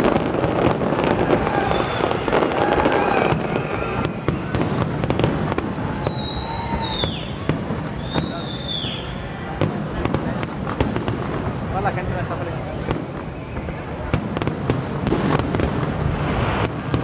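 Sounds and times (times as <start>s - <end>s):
fireworks bangs and crackling: 0.0s - 17.0s.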